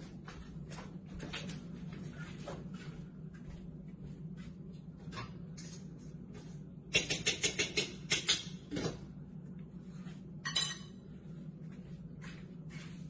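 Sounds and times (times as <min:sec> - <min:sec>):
steady low hum: 0:00.0 - 0:13.0
kitchenware clinking and clattering: 0:10.4 - 0:11.0.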